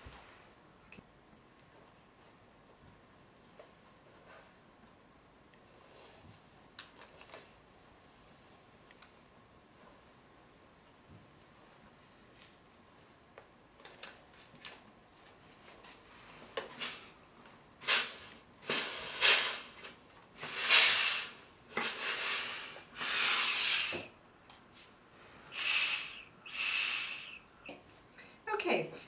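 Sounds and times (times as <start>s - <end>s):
steam iron hissing bursts: 17.8s - 24.1s, 25.5s - 27.4s.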